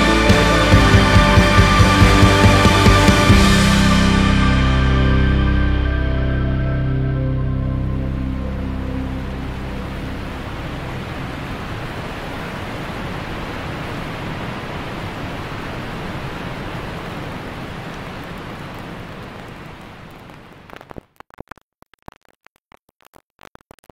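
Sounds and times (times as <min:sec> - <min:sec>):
water pouring over a dam spillway: 0:09.3 - 0:21.1
old film scratch crackling: 0:19.8 - 0:23.9.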